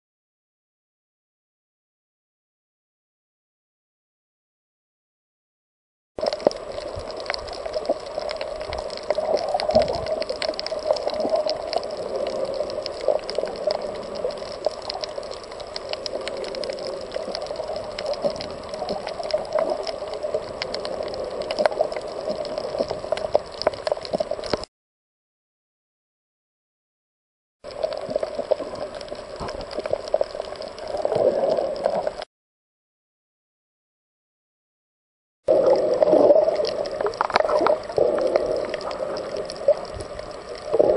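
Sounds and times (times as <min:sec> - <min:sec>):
muffled underwater rushing: 0:06.2 - 0:24.7, 0:27.7 - 0:32.3, 0:35.5 - 0:40.9
sharp clicks and crackles: 0:06.2 - 0:24.7, 0:27.7 - 0:32.3, 0:35.5 - 0:40.9.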